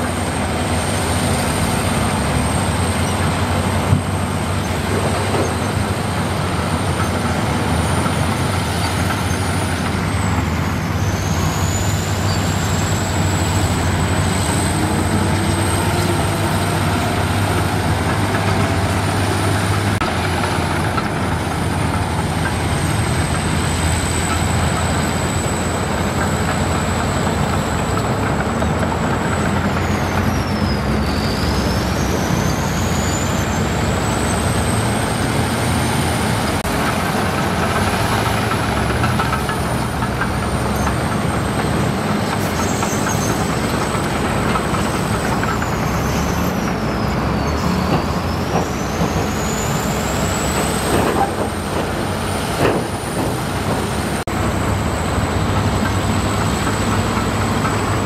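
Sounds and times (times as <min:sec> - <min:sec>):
diesel construction machine running: 0:00.0 - 0:58.0.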